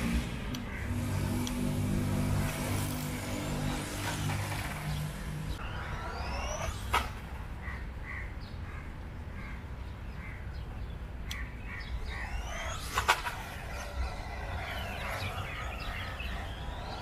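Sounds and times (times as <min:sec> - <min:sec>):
electric motor whining: 0:00.9 - 0:07.4, 0:12.0 - 0:17.0
steady low rumble: 0:11.1 - 0:17.0.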